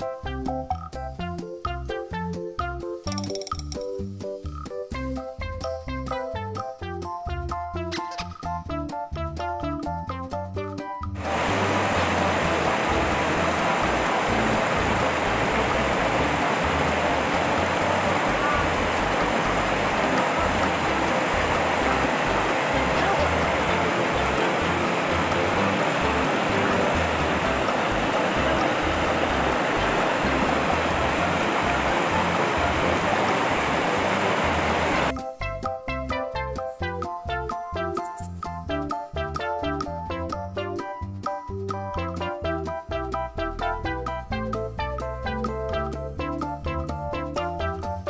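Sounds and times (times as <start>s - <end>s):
river water rushing over rocks: 11.2s - 35.1s.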